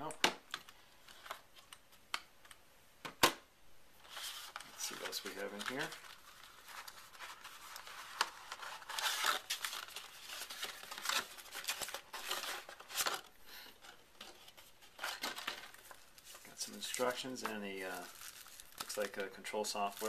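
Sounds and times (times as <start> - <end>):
cardboard and paper rustling: 4.0 - 20.0.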